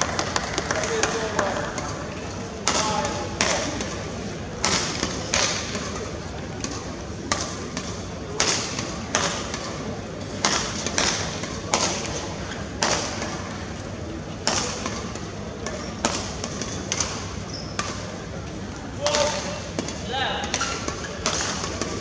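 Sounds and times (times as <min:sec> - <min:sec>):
badminton racket hitting shuttlecock: 0:02.6 - 0:04.0.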